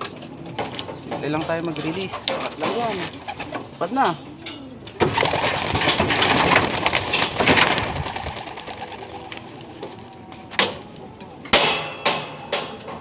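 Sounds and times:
pigeons flapping wings: 5.0s - 10.0s.

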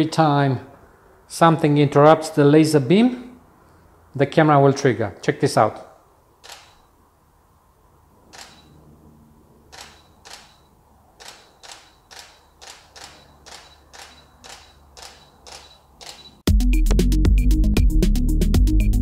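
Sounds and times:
camera shutter clicking: 6.4s - 6.9s, 8.3s - 8.8s, 9.7s - 16.4s.

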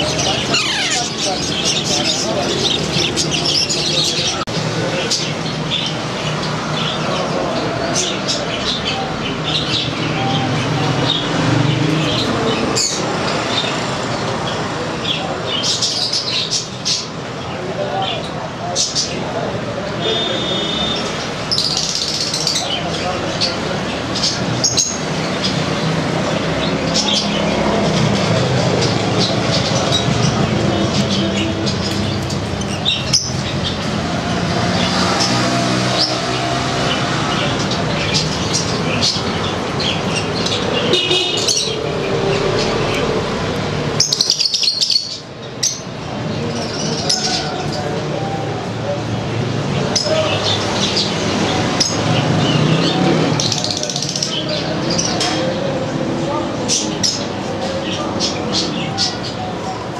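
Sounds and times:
budgerigars chirping: 0.0s - 11.3s, 28.7s - 34.2s, 36.8s - 43.2s, 44.0s - 47.8s
parrots chattering and squawking: 0.0s - 17.3s, 20.2s - 48.7s, 49.3s - 59.9s.

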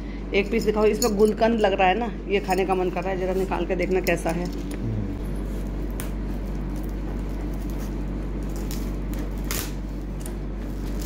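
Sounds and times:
low hum: 3.8s - 7.7s
foil crinkle: 6.2s - 11.0s
scissors cutting foil: 6.5s - 9.8s.

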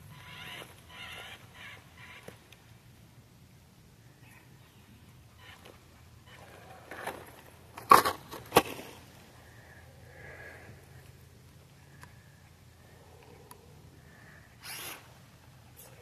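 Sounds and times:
faint low hum: 0.0s - 16.0s
sharp cracks: 7.8s - 9.0s.

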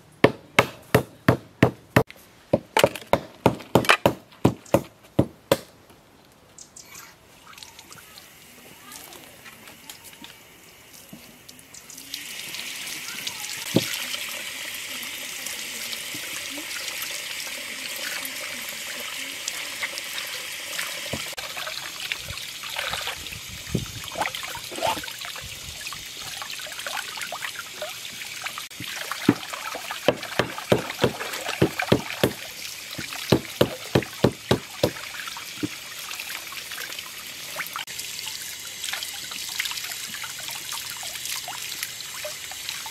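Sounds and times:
water running from tap: 11.6s - 42.9s
sharp wet splashes: 28.7s - 35.6s.

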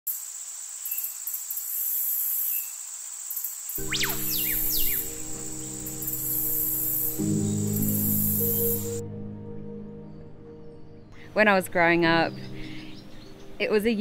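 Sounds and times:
insect chorus trilling: 0.1s - 9.0s
whistling pitch sweeps: 3.8s - 9.0s
low music pad: 3.8s - 14.0s.

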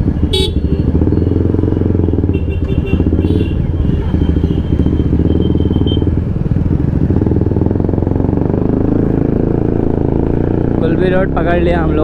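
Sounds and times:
motorcycle engine running: 0.0s - 12.0s.

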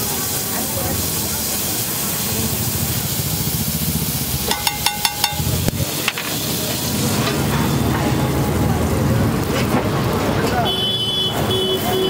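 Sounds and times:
griddle sizzling: 0.0s - 12.0s
traffic rumble: 0.0s - 12.0s
metal spatula clacking on griddle: 4.5s - 6.4s.

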